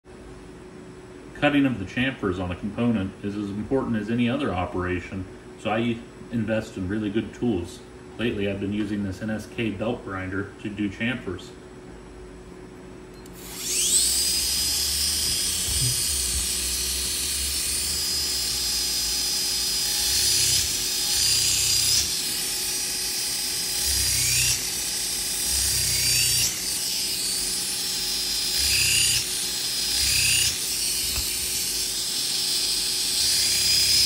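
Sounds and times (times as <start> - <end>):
belt grinder whine: 13.3 - 34.0.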